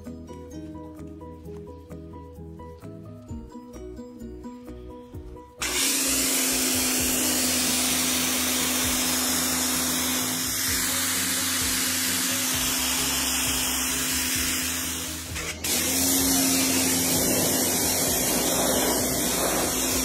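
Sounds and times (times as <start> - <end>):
music with plucked notes: 0.0 - 5.6
pressure washer motor humming: 5.6 - 20.0
water jet hissing on concrete: 5.6 - 20.0.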